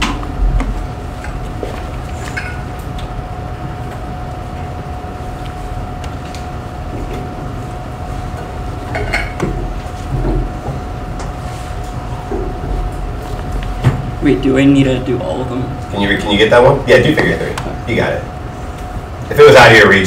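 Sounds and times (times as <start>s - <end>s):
low room rumble: 0.0s - 20.0s
thin constant hum: 0.0s - 20.0s.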